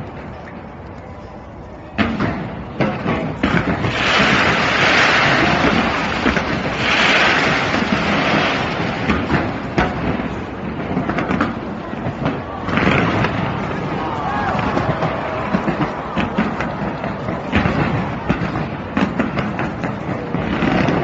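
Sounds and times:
constant background noise: 0.0 - 21.0
fireworks bangs and crackling: 1.9 - 21.0
fireworks hissing: 3.5 - 11.5.

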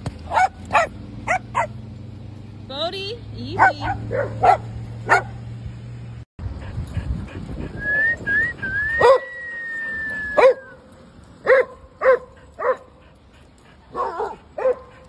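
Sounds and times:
dogs barking: 0.2 - 1.9, 3.5 - 5.5, 9.0 - 9.4, 10.4 - 10.8, 11.4 - 15.0.

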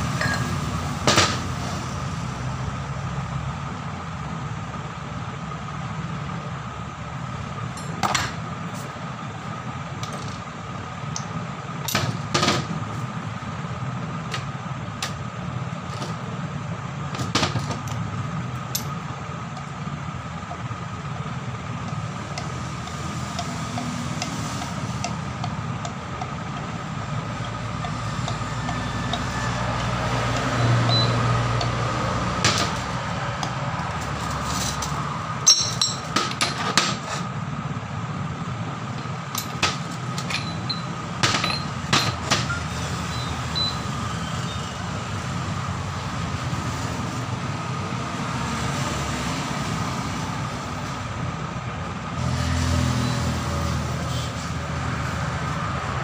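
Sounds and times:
low road traffic rumble: 0.0 - 56.0
metal parts clinking on workbench: 35.4 - 36.8, 39.4 - 42.2.

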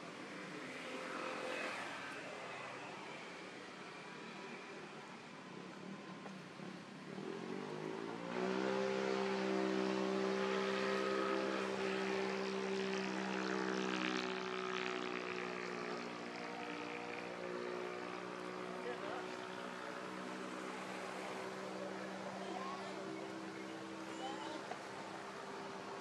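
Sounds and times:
engine speeding up and running: 6.6 - 26.0.

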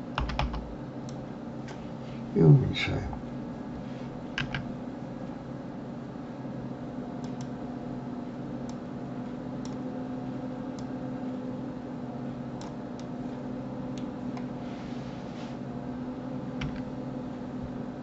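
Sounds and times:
low background hum: 0.0 - 18.0
keyboard and mouse clicks: 4.4 - 4.7, 7.2 - 7.5, 16.6 - 16.9.

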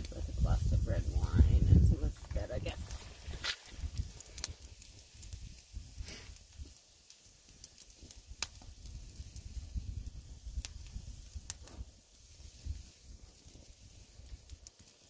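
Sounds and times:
low rumble: 0.0 - 4.2
campfire crackling: 0.0 - 15.0
sharp fire pops: 0.0 - 15.0.

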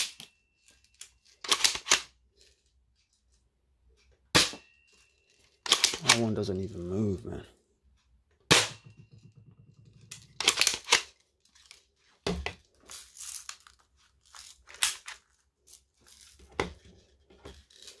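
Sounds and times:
shotgun pump clacks: 1.4 - 2.1, 5.6 - 6.4, 10.4 - 11.1
gun handling rattles: 8.8 - 18.0.

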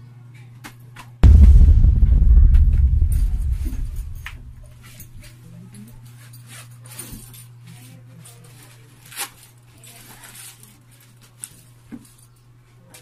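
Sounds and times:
steady low hum: 1.2 - 4.8.

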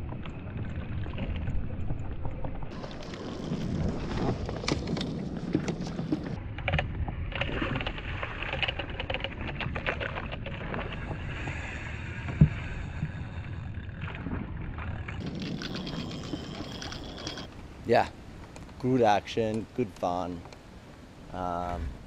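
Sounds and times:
water washing against hull: 0.0 - 17.5.

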